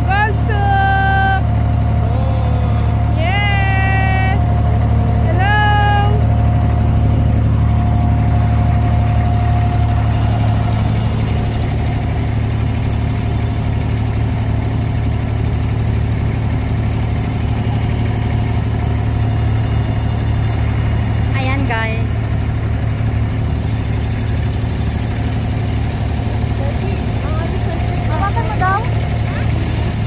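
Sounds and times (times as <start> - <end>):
boat engine droning: 0.0 - 30.0.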